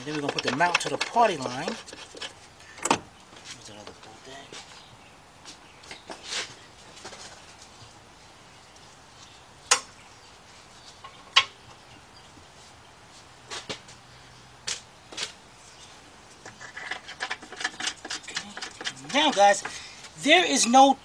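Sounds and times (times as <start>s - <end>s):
hand tools clicking and knocking: 0.0s - 3.0s, 16.4s - 19.8s.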